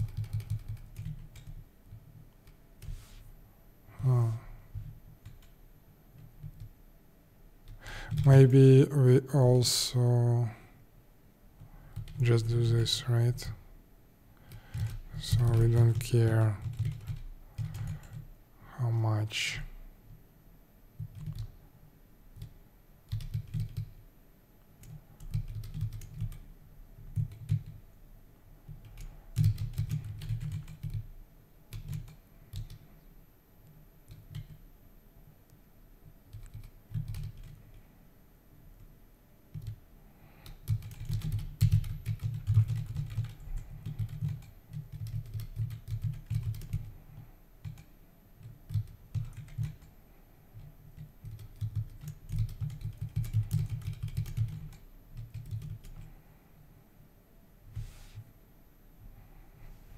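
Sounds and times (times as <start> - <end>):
computer keyboard typing: 0.0 - 2.9, 4.8 - 5.6, 6.2 - 6.7, 7.6 - 8.4, 11.9 - 12.2, 14.4 - 18.3, 21.0 - 21.6, 22.3 - 23.9, 24.8 - 27.8, 28.7 - 31.1, 31.7 - 32.9, 34.1 - 34.6, 36.3 - 37.7, 39.5 - 39.8, 40.4 - 47.0, 47.6 - 49.9, 50.6 - 56.1.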